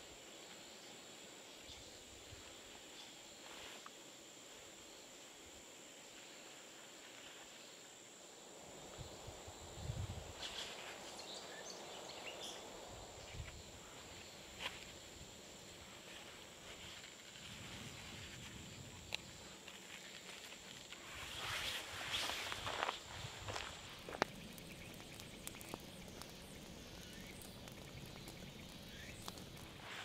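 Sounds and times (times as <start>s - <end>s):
leaves rustling and crinkling: 2.4s - 4.0s, 6.1s - 8.0s, 10.0s - 30.0s.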